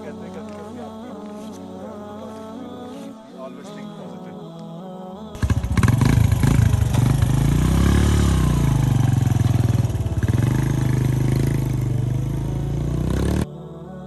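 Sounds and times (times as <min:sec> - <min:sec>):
motorcycle engine idling: 0:05.4 - 0:13.5.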